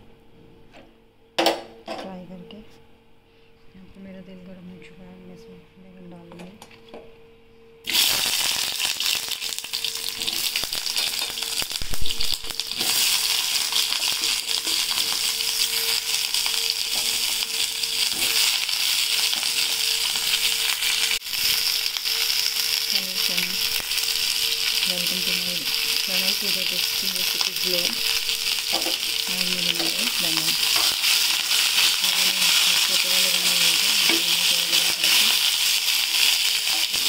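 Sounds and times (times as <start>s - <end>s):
eggplant frying in oil: 7.9s - 37.0s.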